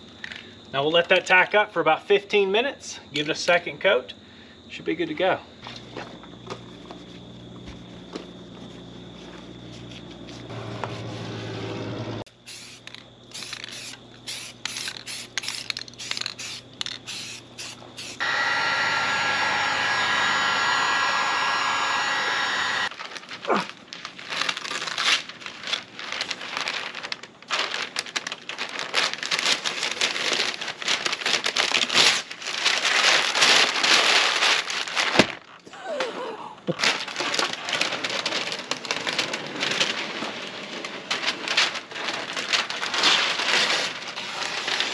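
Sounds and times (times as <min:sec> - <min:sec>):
tape and paper peeling: 0:12.5 - 0:18.3
steady rushing hum: 0:18.0 - 0:22.9.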